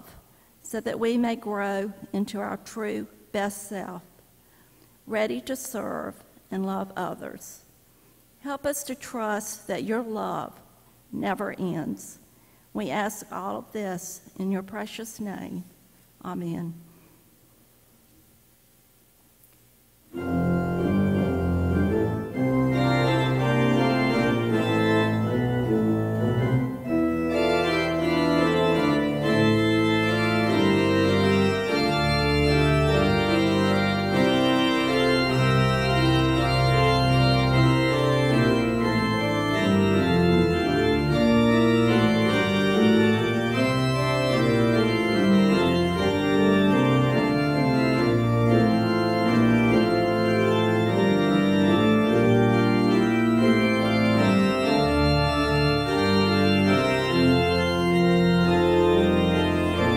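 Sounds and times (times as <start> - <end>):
pipe organ chords: 20.1 - 59.9.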